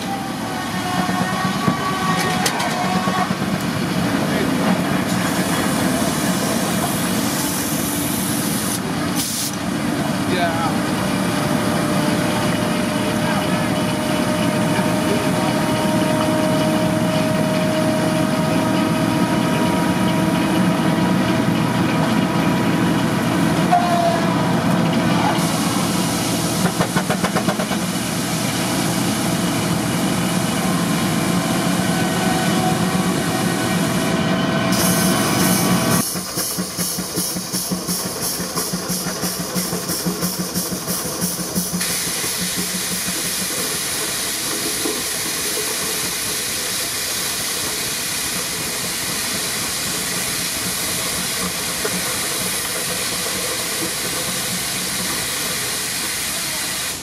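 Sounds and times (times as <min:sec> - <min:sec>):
sawmill machinery noise: 0:00.0 - 0:57.0
steam traction engine running: 0:00.0 - 0:57.0
steam hiss: 0:04.9 - 0:09.6, 0:25.3 - 0:29.5, 0:31.5 - 0:57.0.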